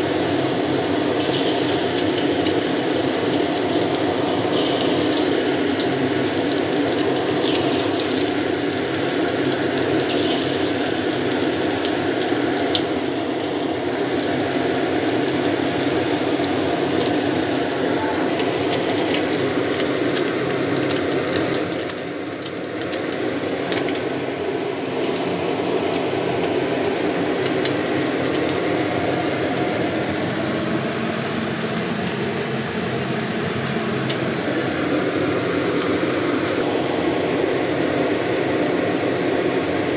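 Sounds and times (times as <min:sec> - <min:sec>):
fish sizzling in hot oil: 0:00.8 - 0:29.0.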